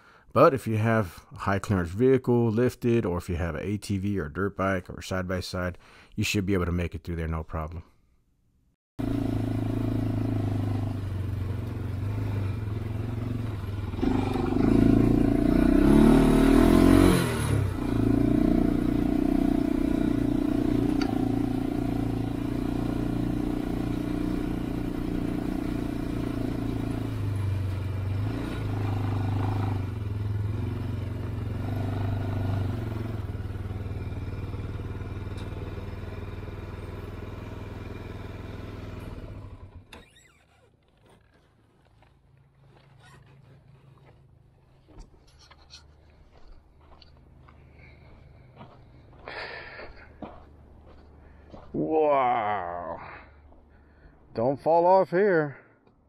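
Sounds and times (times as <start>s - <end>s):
atv engine revving: 9.0s - 42.1s.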